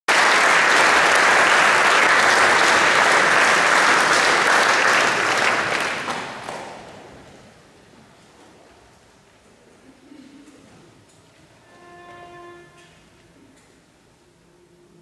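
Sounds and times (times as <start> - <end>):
audience applauding: 0.1 - 7.0.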